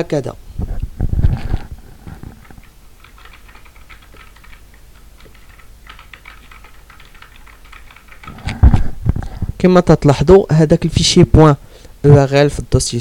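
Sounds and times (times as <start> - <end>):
typing on keyboard: 2.2 - 8.8.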